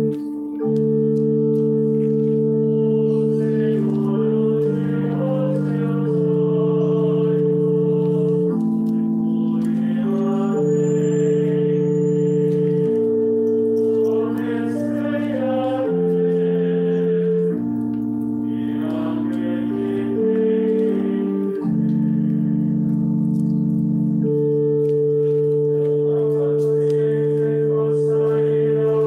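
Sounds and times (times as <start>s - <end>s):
organ chords: 0.0s - 29.0s
voices singing: 2.4s - 23.2s, 25.4s - 29.0s.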